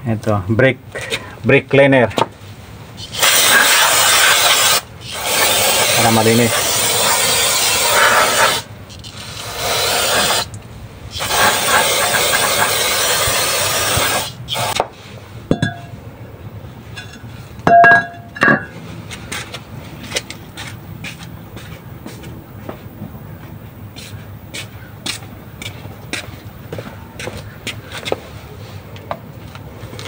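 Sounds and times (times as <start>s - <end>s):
aerosol spray hissing: 3.0s - 10.5s, 11.2s - 14.8s
metal clinks: 15.5s - 16.0s, 17.0s - 18.8s.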